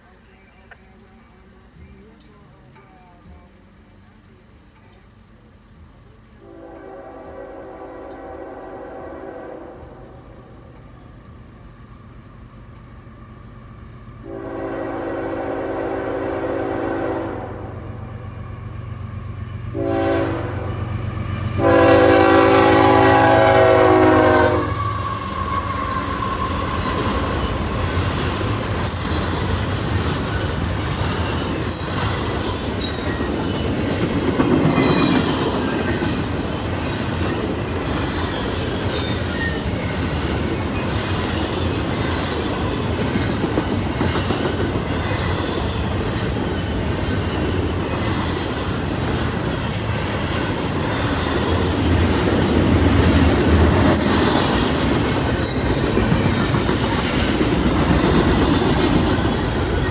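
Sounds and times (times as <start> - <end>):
locomotive air horn blasts: 6.4 - 10.2, 14.2 - 17.8, 19.7 - 20.8, 21.6 - 27.0
train wheels clattering and squealing: 24.7 - 59.9.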